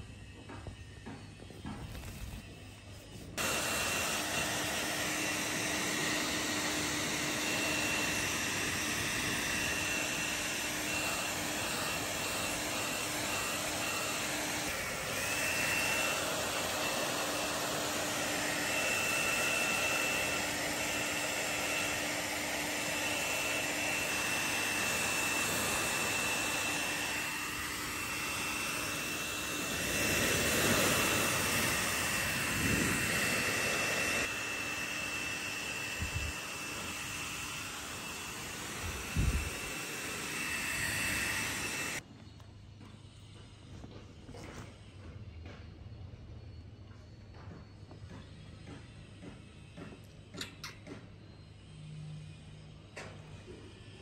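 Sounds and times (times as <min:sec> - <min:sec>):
fan rushing: 0:00.0 - 0:42.0.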